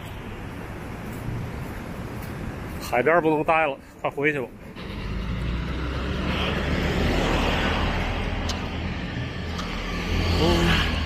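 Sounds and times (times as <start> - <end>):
steady low traffic rumble: 0.0 - 11.0
car passing by: 4.7 - 11.0.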